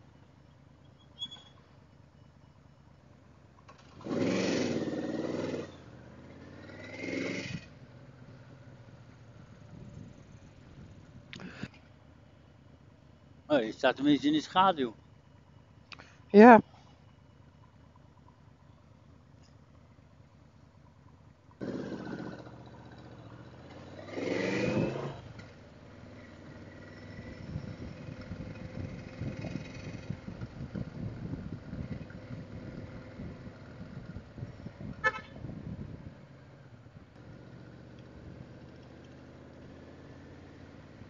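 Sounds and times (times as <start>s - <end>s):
motorcycle engine accelerating: 3.6s - 11.3s, 21.5s - 41.0s
wind noise on microphone: 27.4s - 36.2s.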